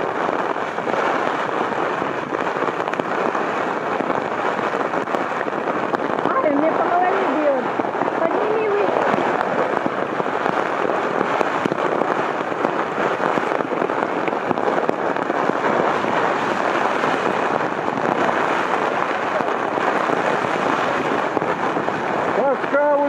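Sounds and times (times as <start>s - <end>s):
hailstones pelting: 0.0s - 23.0s
storm wind: 0.0s - 23.0s.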